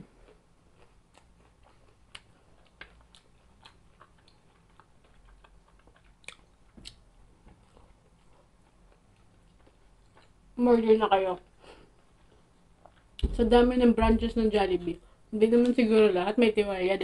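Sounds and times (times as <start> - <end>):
person chewing food: 0.0 - 10.6, 11.4 - 13.2.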